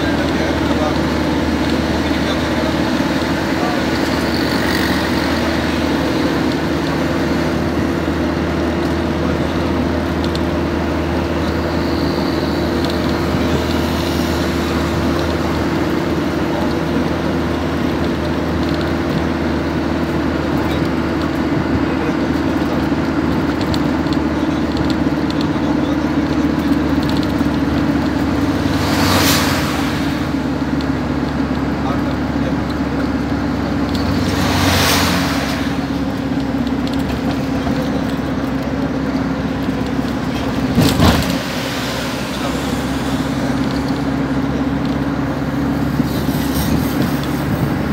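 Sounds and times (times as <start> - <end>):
road and wind noise: 0.0 - 47.9
van engine drone: 0.0 - 47.9.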